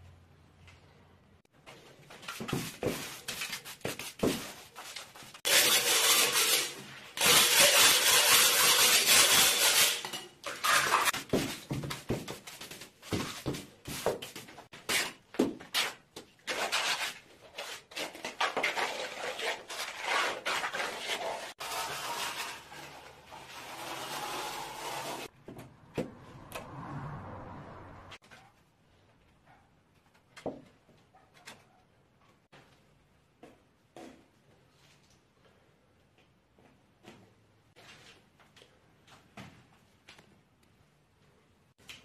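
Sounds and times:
steel trowel scraping: 4.7s - 11.2s, 14.8s - 25.3s
hand brush sweeping concrete: 18.5s - 22.9s.

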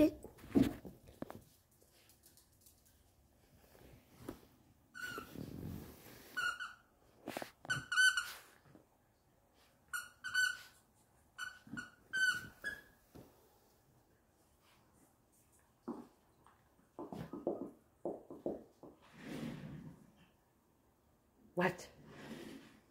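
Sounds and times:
squeaky toy squeaking: 6.4s - 6.9s, 7.7s - 8.4s, 9.9s - 10.8s, 11.4s - 13.0s.

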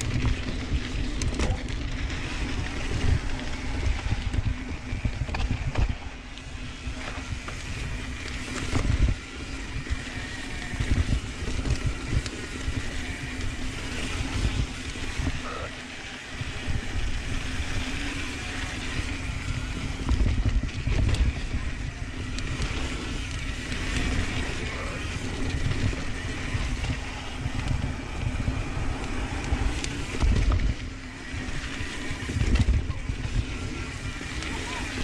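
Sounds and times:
bike tyres rolling over dirt: 0.0s - 35.0s
wind rushing over microphone: 0.0s - 35.0s.

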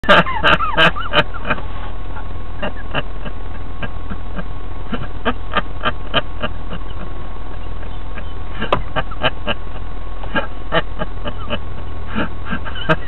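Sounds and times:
low hum inside a car: 0.0s - 13.0s
man laughing in breathy bursts: 0.0s - 13.0s.

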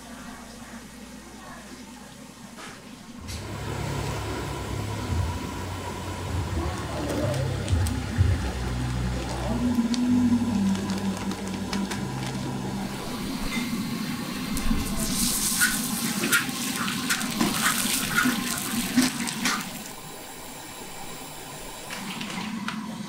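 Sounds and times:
fat sizzling in a wok: 10.4s - 22.5s.

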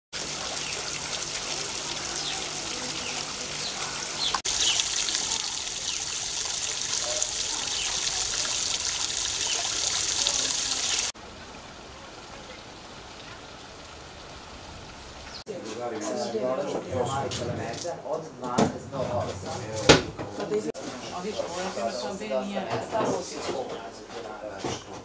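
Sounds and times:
hiss of falling water: 0.1s - 15.4s.

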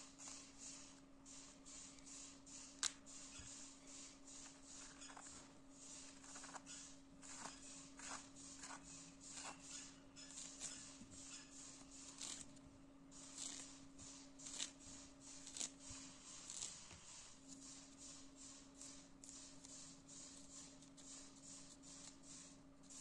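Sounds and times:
blade scraping orange peel: 4.4s - 12.6s, 13.2s - 17.9s.

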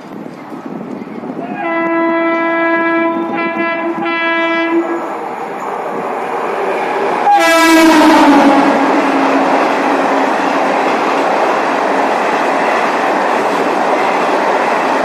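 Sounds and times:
rumble of approaching train: 0.0s - 15.0s
locomotive horn blasts: 1.6s - 5.1s, 7.2s - 9.6s.

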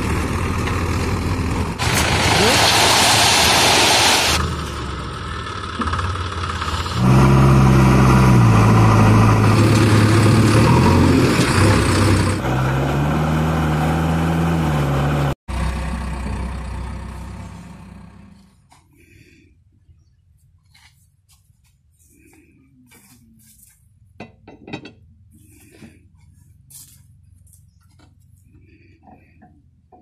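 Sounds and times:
diesel engine working hard: 0.0s - 18.8s.

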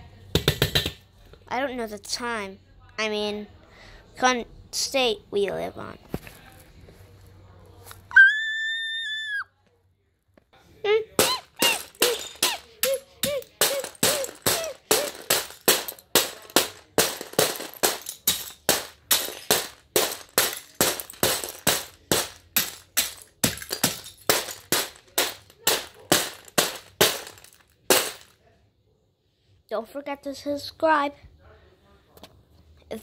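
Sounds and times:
plastic bricks clattering: 11.2s - 28.4s.

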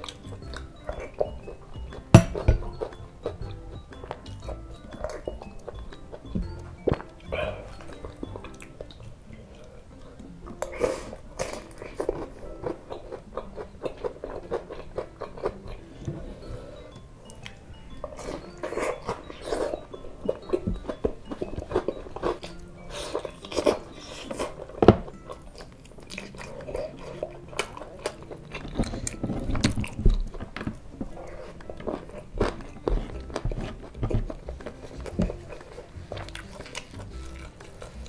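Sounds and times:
mouth clicks: 0.0s - 16.1s
biting and chewing fried food: 0.0s - 38.0s.

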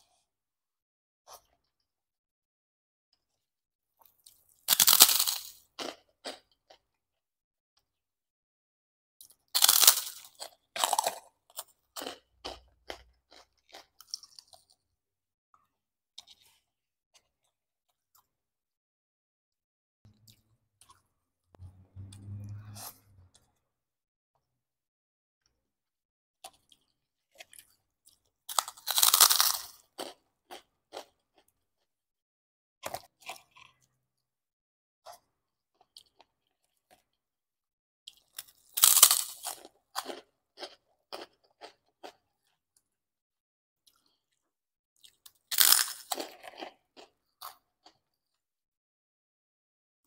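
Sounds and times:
crunchy chewing: 4.0s - 6.8s, 9.2s - 14.8s, 26.4s - 31.9s, 38.1s - 42.6s, 45.0s - 48.1s
bites into crispy cracker: 4.3s - 6.4s, 9.2s - 14.7s, 28.5s - 31.2s, 38.1s - 42.2s, 45.0s - 47.6s.

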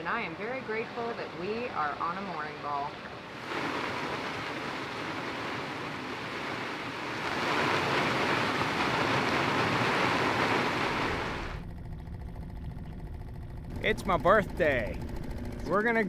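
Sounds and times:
driving rain on water: 0.0s - 11.6s
storm wind: 0.0s - 11.7s.

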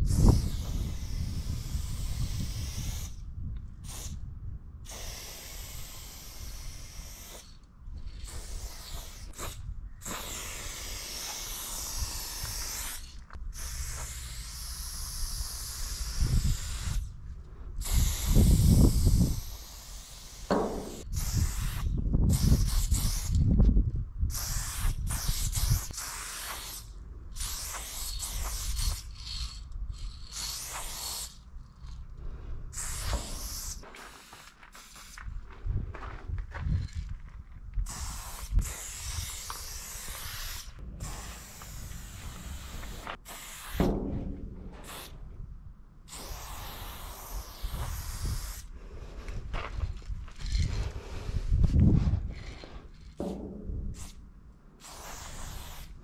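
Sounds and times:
spray can hissing: 0.1s - 3.2s, 3.8s - 4.2s, 4.9s - 17.1s, 17.8s - 23.4s, 24.3s - 31.4s, 32.8s - 35.2s, 37.8s - 44.0s, 44.8s - 45.2s, 46.1s - 48.7s, 52.4s - 54.2s, 54.8s - 56.0s
low rumbling: 43.9s - 46.0s, 48.8s - 54.4s.

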